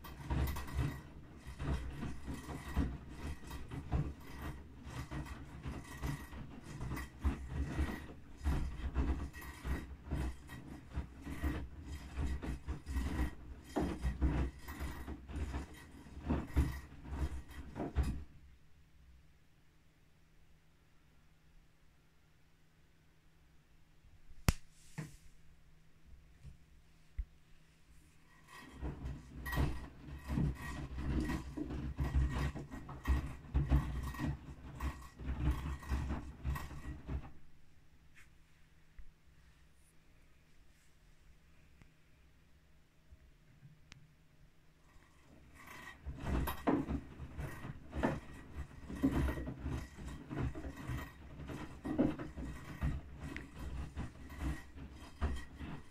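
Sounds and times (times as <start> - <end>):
washing machine drum tumbling: 0.0 - 18.4, 28.3 - 37.5, 44.9 - 55.9.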